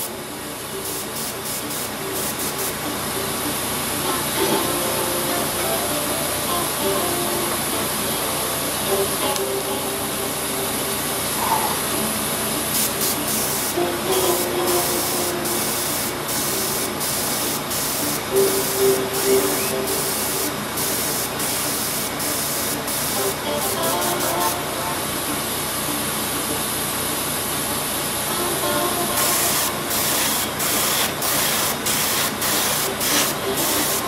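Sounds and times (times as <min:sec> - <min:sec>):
airbrush spraying hiss: 0:00.8 - 0:02.8, 0:12.7 - 0:24.6, 0:29.2 - 0:34.0.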